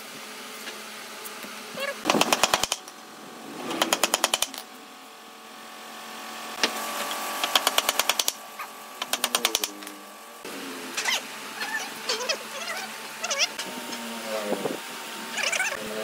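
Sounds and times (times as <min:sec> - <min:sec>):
hammer striking nails into wood: 0:07.4 - 0:08.4.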